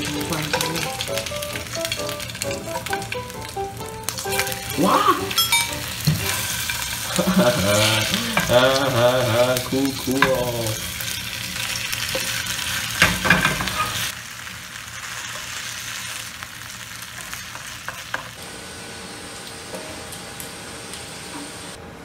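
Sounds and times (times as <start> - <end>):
potato slices sizzling in oil: 0.0 - 21.8
spatula scraping pan: 12.1 - 14.1.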